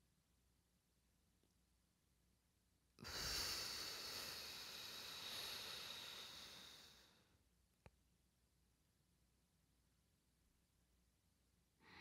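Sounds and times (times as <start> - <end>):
woman exhaling breathily: 3.0 - 7.2.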